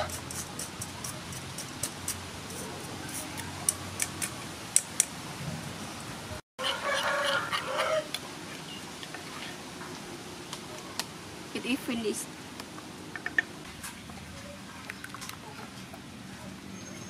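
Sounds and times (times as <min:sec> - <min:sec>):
rooster crowing: 0:06.6 - 0:08.1.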